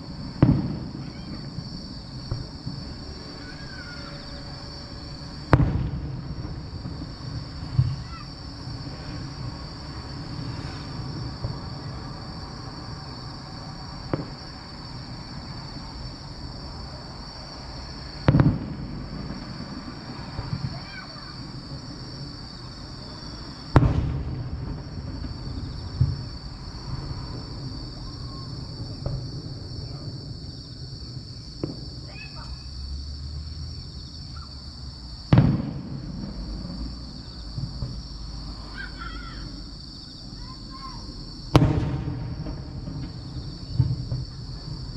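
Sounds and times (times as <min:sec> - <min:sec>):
loud firework bang: 0:00.0 - 0:12.6, 0:13.6 - 0:14.8, 0:18.2 - 0:22.2, 0:23.4 - 0:30.6, 0:31.6 - 0:32.6, 0:35.3 - 0:39.1, 0:40.4 - 0:44.9
fireworks popping: 0:00.0 - 0:16.8, 0:17.8 - 0:32.6, 0:35.3 - 0:39.1, 0:40.3 - 0:44.9
insects chirring: 0:00.0 - 0:44.9.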